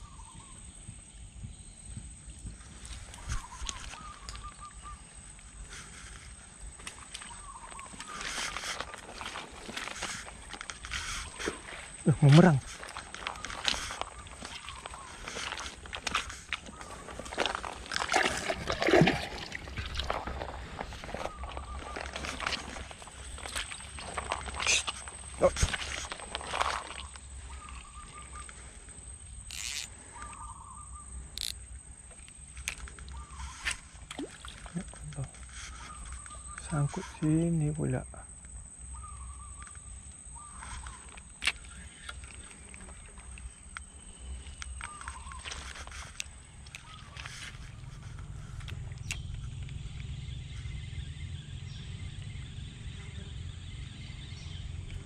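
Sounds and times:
insects hissing: 0:00.0 - 0:55.0
high-pitched insect drone: 0:29.2 - 0:31.7.

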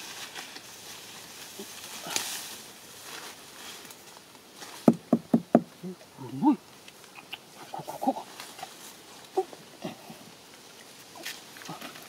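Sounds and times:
knife hacking tree trunk: 0:04.8 - 0:05.7.

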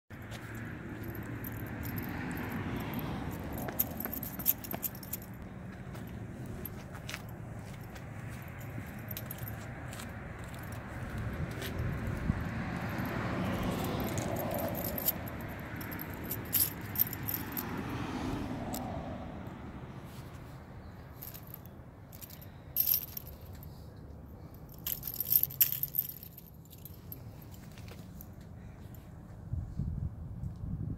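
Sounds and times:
metal scales clinking: 0:24.6 - 0:27.2.

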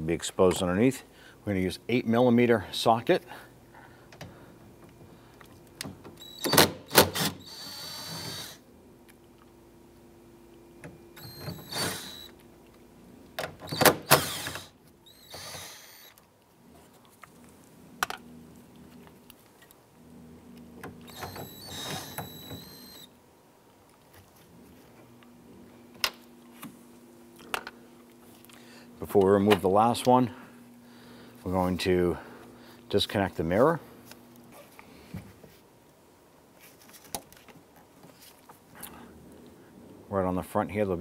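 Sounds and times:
impact driver bursts: 0:06.2 - 0:08.6, 0:11.2 - 0:12.4, 0:13.6 - 0:16.2, 0:21.0 - 0:23.1.

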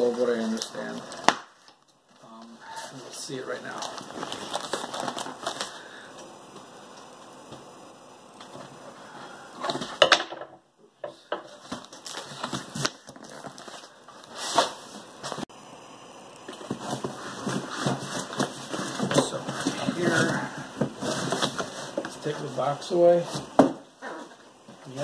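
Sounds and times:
packing tape crackling and tearing: 0:03.6 - 0:05.8.

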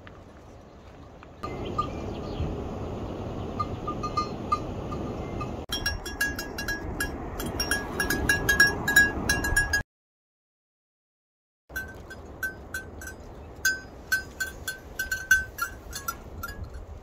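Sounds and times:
faint livestock bell tinkles: 0:03.6 - 0:09.8, 0:11.7 - 0:17.0.

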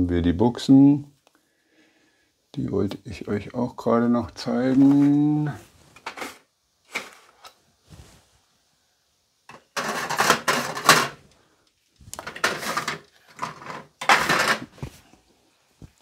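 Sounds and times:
small parts rattling: 0:09.5 - 0:11.3, 0:12.0 - 0:14.8.

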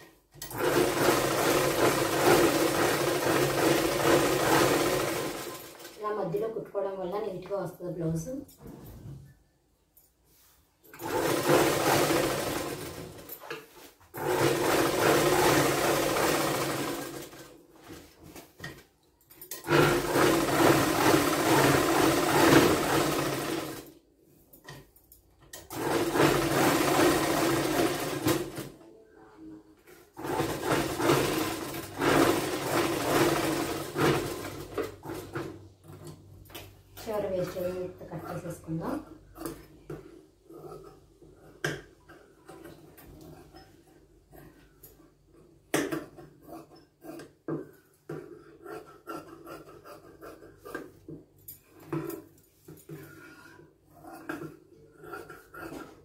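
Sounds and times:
sewing machine stitching: 0:00.4 - 0:06.0, 0:10.9 - 0:18.0, 0:19.5 - 0:24.0, 0:25.5 - 0:28.8, 0:30.1 - 0:36.2.

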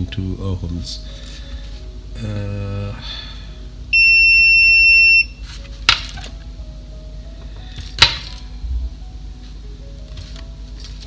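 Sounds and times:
multimeter high-pitched beep: 0:03.9 - 0:05.4.

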